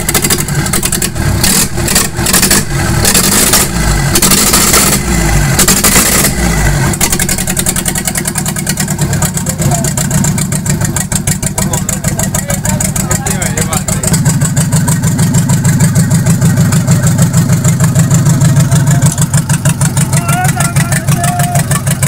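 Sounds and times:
diesel engine idling: 0.0s - 22.0s.

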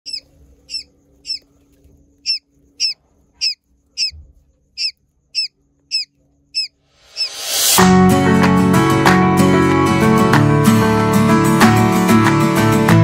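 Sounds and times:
quail chick peeping: 0.1s - 7.6s.

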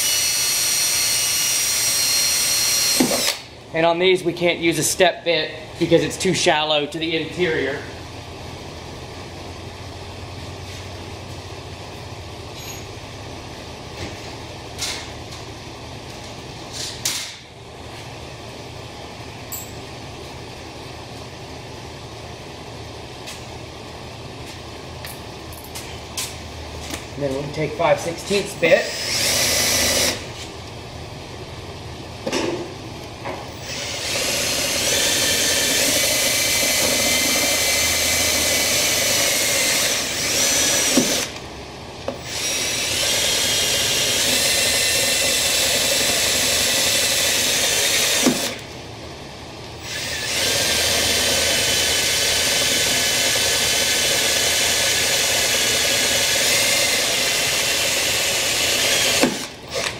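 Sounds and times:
cordless drill drilling steel: 0.0s - 3.5s, 28.8s - 30.2s, 33.5s - 41.4s, 42.2s - 48.6s, 49.8s - 59.9s.

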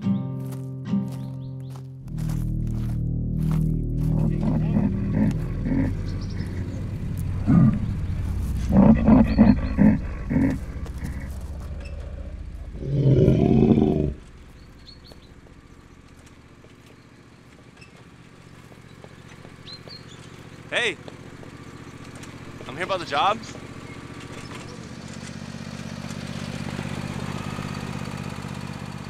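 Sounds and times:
faint outdoor ambience: 0.4s - 27.6s
low droning score: 1.9s - 16.4s
deep animal-like growls: 2.2s - 14.3s
loud creature roar: 4.0s - 14.2s.

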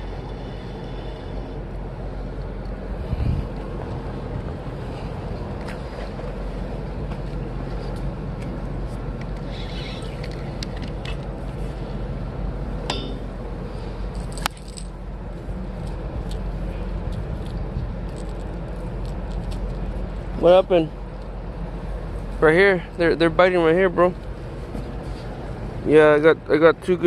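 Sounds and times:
wind rumble on microphone: 2.8s - 8.0s, 15.4s - 20.3s.

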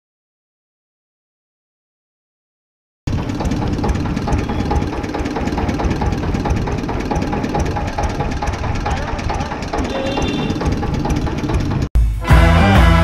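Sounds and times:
small stationary engine running: 3.1s - 11.9s.

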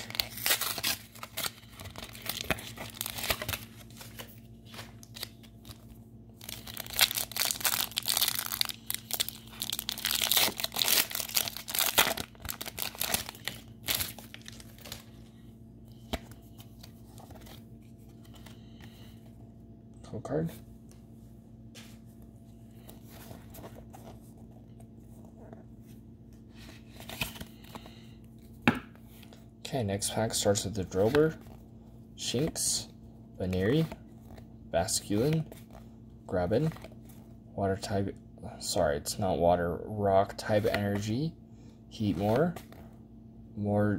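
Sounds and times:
foil wrapper tearing and crinkling: 0.0s - 3.9s, 6.4s - 15.0s.

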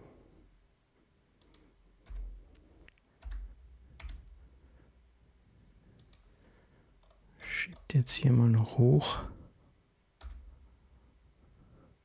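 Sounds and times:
keyboard and mouse clicks: 1.4s - 4.3s, 6.0s - 6.3s, 10.2s - 10.5s.

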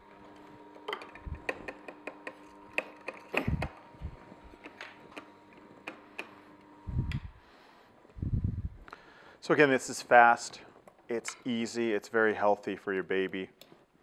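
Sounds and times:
juicer motor hum: 0.0s - 8.7s.

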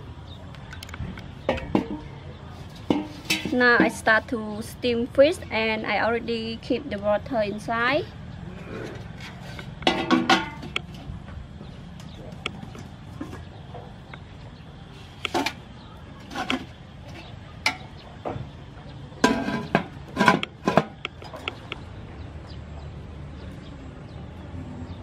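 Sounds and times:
metal pot and lid clanking: 1.4s - 2.1s, 2.7s - 4.1s, 8.8s - 11.0s, 15.3s - 15.6s, 16.2s - 18.0s, 19.2s - 21.5s.

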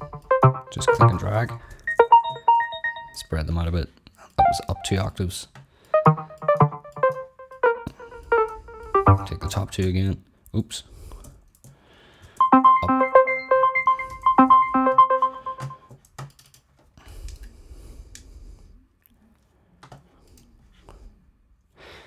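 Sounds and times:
synthesizer arpeggio: 0.0s - 3.2s, 4.4s - 5.1s, 6.0s - 9.7s, 12.4s - 15.9s.

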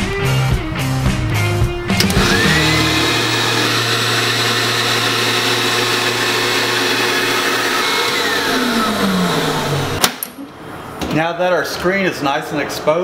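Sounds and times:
switch click: 1.9s - 2.2s
vacuum pump motor whining: 1.9s - 10.1s.

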